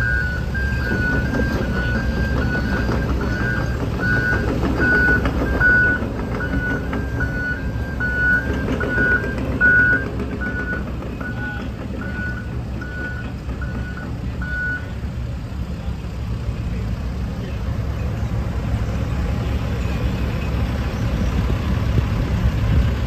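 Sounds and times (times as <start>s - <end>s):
reversing alarm beeping: 0.0s - 15.0s
diesel engines under load: 0.0s - 23.0s.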